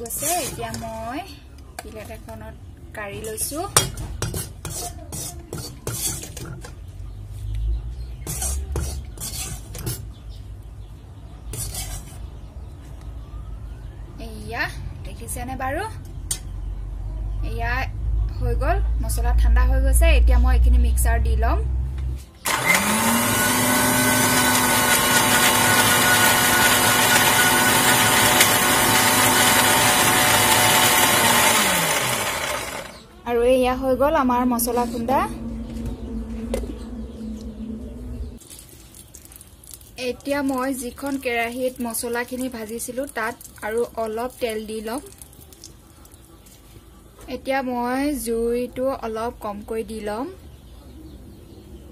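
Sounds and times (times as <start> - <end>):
metal spatula scraping a wok: 0.0 - 0.8, 3.2 - 6.8, 8.2 - 10.1, 11.5 - 12.3
mixer grinder motor whining: 22.4 - 33.0.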